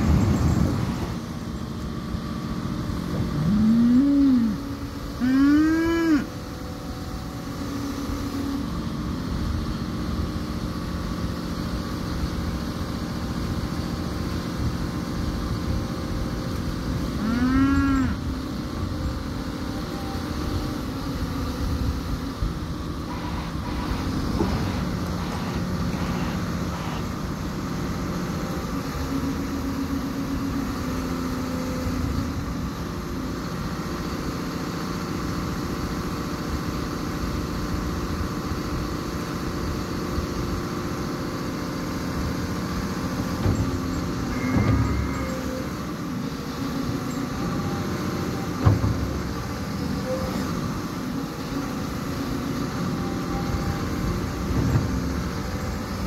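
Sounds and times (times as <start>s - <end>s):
excavator diesel engine running: 0.0s - 56.0s
hydraulic boom working: 16.8s - 31.0s, 42.2s - 56.0s.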